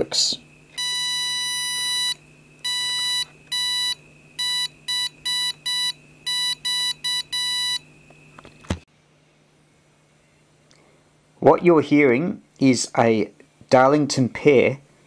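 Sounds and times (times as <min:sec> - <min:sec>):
oscillator high beeps: 0:00.8 - 0:07.8.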